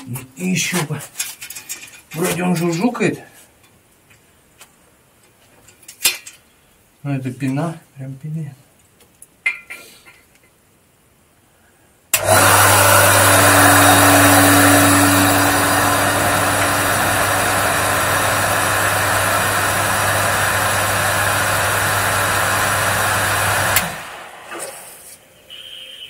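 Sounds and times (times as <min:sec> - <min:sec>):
electric water pump running: 0:12.2 - 0:24.7
loud rushing hiss: 0:12.3 - 0:26.0.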